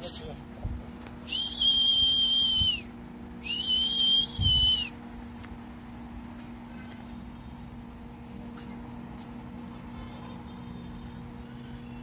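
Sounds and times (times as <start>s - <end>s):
shrill whistle blast: 1.3s - 4.9s.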